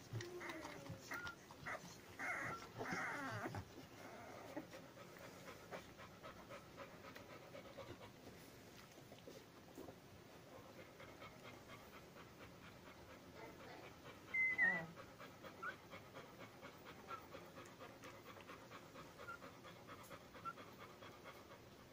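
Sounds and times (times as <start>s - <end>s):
dog panting: 0.0s - 21.9s
puppies squeaking: 14.3s - 14.9s.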